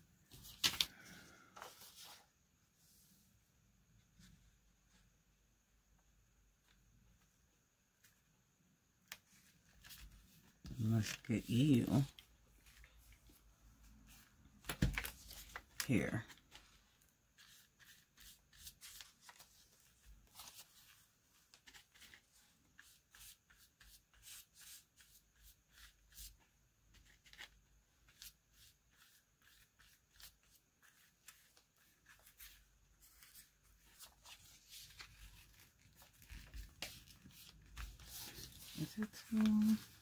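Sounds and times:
paper rustling: 0:00.2 - 0:02.3, 0:09.1 - 0:13.4, 0:14.0 - 0:26.2, 0:26.9 - 0:40.0
paintbrush scratching on paper: 0:17.3 - 0:19.1, 0:21.8 - 0:27.1, 0:28.2 - 0:34.1, 0:36.8 - 0:40.0.

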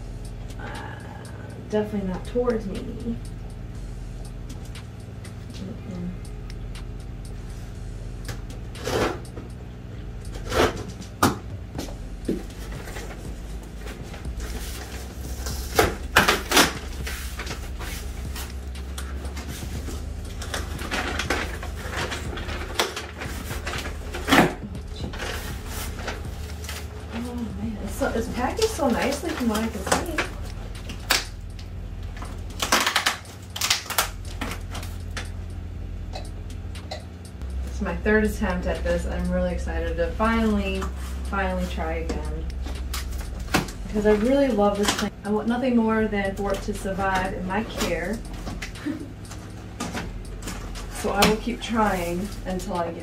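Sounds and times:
blade slitting packing tape: 0:32.5 - 0:34.9.

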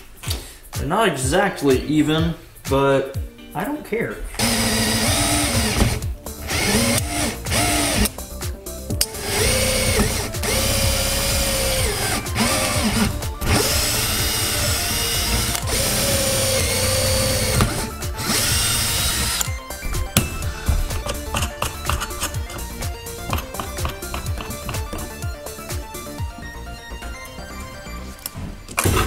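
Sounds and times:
cordless drill boring into plastic pipe: 0:04.4 - 0:08.1, 0:09.2 - 0:19.5.

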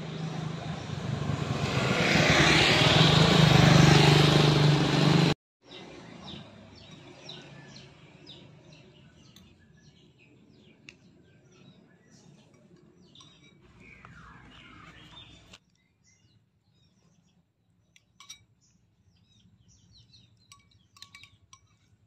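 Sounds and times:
vehicle engine approaching: 0:00.0 - 0:09.3, 0:13.6 - 0:15.6
faint birds chirping: 0:05.6 - 0:22.0.

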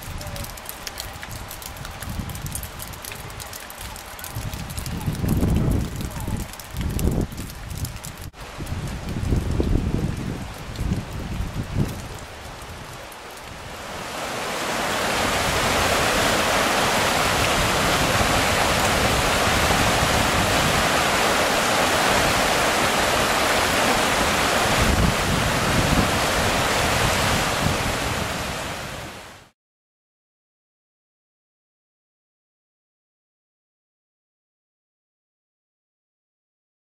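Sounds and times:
wind on microphone: 0:00.0 - 0:03.5, 0:04.2 - 0:29.4
river rushing through rapids: 0:12.2 - 0:29.5.

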